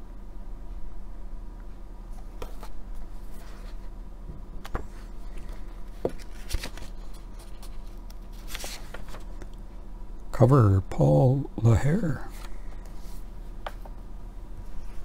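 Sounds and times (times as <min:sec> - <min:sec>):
magazine paper rustling: 0:04.7 - 0:09.5.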